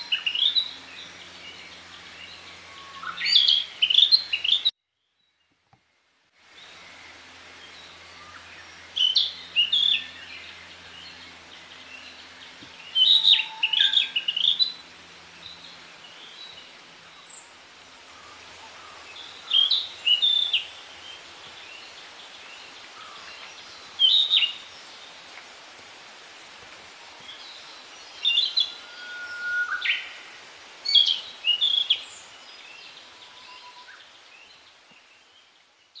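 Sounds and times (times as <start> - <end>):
bird singing whistled notes: 2.3 - 5.3, 12.8 - 14.7, 24.0 - 24.6, 28.2 - 32.2, 32.8 - 34.6.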